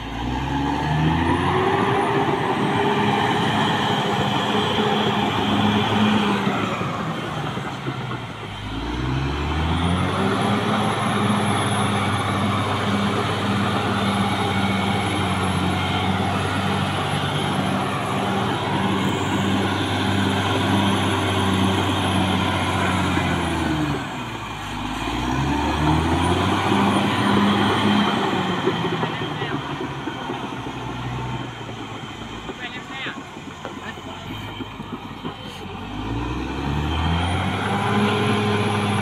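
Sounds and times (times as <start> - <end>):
bulldozer diesel engine revving: 0.0 - 39.0.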